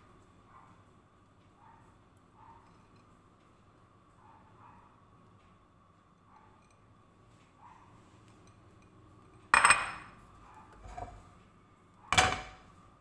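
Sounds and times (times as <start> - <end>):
kitchenware clinking: 9.5 - 10.2, 12.1 - 12.6.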